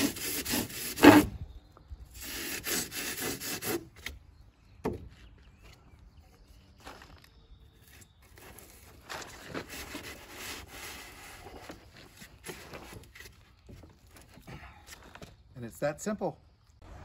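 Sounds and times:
foam rubbing and scraping: 0.0 - 1.4, 2.1 - 3.9, 8.2 - 13.5.

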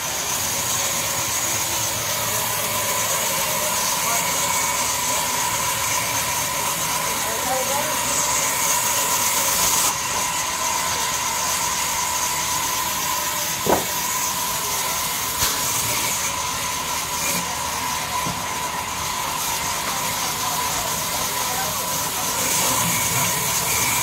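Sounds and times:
band saw running: 0.0 - 24.0
sharp knock: 13.6 - 14.0.

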